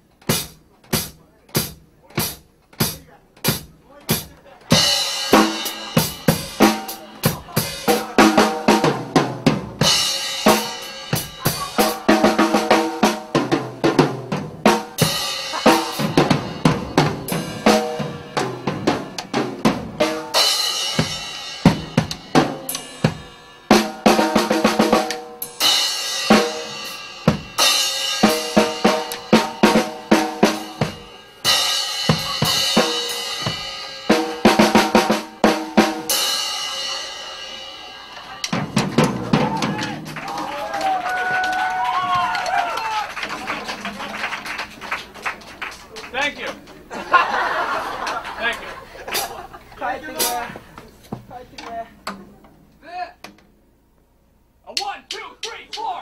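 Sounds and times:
drum kit beaten hard: 0.0s - 44.7s, 49.0s - 50.6s, 54.6s - 56.0s
rock band playing: 0.2s - 48.2s, 49.1s - 49.6s
crashing cymbals: 20.3s - 24.0s.

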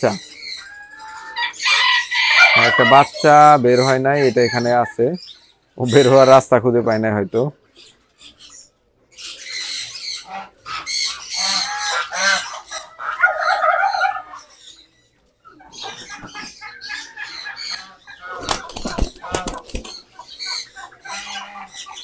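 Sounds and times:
fowl squawking: 0.6s - 5.2s, 9.2s - 14.8s, 15.5s - 22.0s
birds flapping wings: 18.4s - 20.0s.

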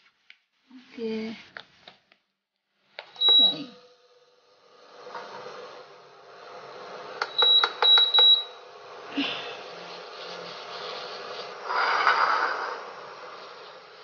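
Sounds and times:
cooktop touch buttons beeping: 3.2s - 3.7s, 7.2s - 8.5s.

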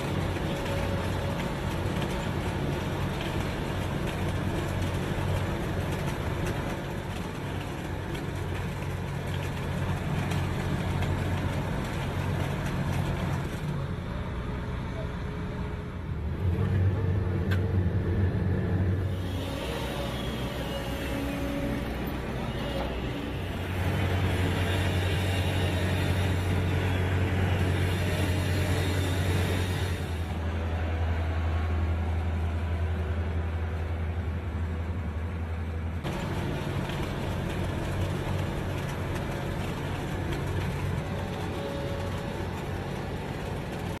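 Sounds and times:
diesel engines droning: 0.0s - 44.0s.

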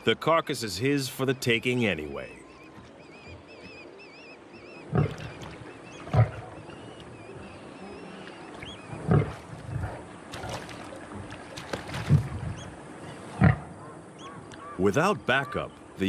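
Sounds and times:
lion snarling and growling: 8.9s - 10.6s.

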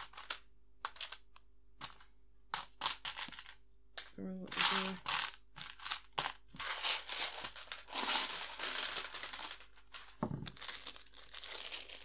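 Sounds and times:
plastic pieces clattering into tray: 2.6s - 12.0s
plastic pieces rattling in tub: 2.6s - 12.0s.

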